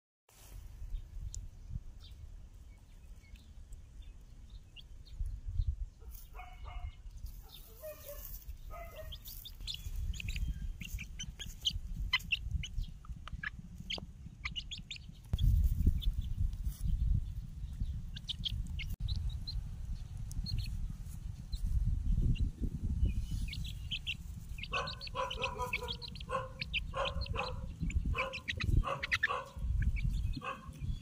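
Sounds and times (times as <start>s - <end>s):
chick peeping: 1.2s - 31.0s
low rumble: 9.5s - 29.0s.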